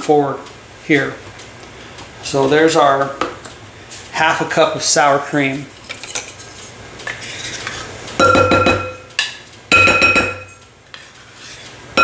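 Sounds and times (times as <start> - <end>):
metal cup tapping glass bowl: 8.2 - 9.0, 9.7 - 10.6.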